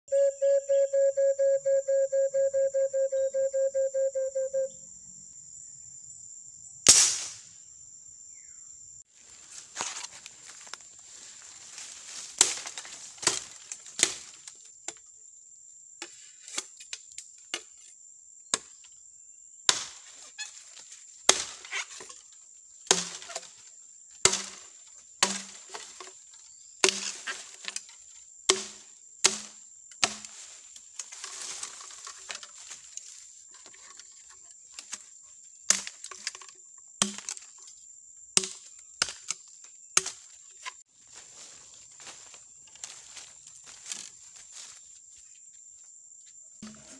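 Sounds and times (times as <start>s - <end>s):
insect drone: 0.1s - 46.9s
machete chopping bamboo: 6.9s - 7.4s, 12.4s - 15.0s, 18.5s - 18.8s, 19.7s - 20.1s, 21.3s - 22.1s, 22.9s - 23.6s, 24.2s - 26.2s, 26.8s - 27.9s, 28.5s - 30.5s, 35.7s - 36.4s, 37.0s - 37.5s, 38.4s - 40.4s.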